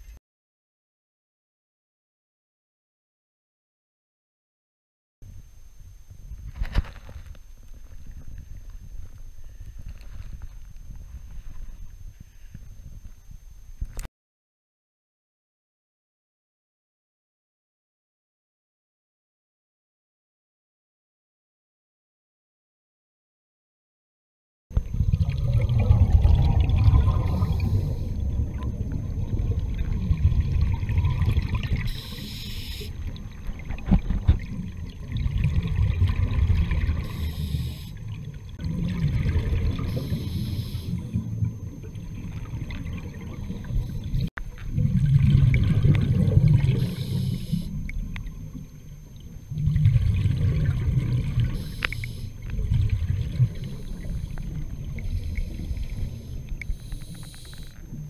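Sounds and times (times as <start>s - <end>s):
exhaled bubbles rumbling underwater: 24.7s - 58.0s
regulator hiss: 27.2s - 28.2s, 31.8s - 33.0s, 37.0s - 38.0s, 39.9s - 41.2s, 46.7s - 47.9s, 51.4s - 52.5s, 53.6s - 58.0s.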